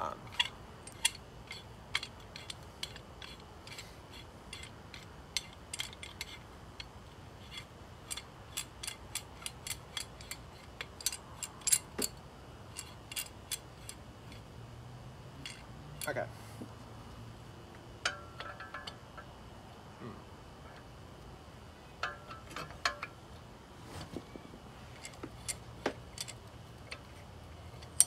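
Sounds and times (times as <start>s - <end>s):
metallic clicks of hand tools: 0.3s - 14.4s, 15.4s - 16.1s, 18.0s - 19.3s, 22.0s - 23.2s, 25.0s - 28.0s.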